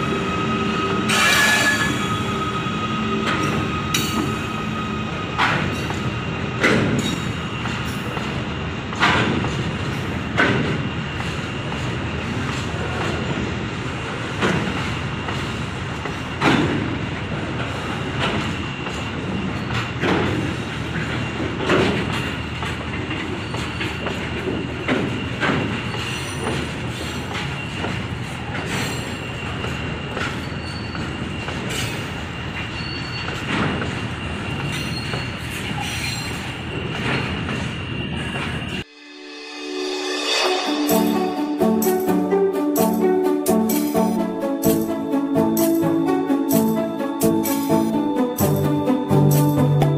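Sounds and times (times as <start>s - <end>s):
freight wagons rolling on rails: 17.6s - 38.8s
thin high-pitched tone: 38.9s - 49.9s.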